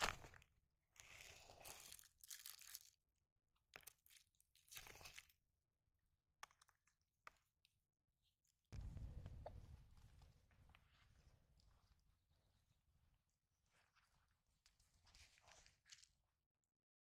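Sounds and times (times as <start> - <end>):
soft squishes of dough: 0.0 - 5.6, 10.2 - 16.7.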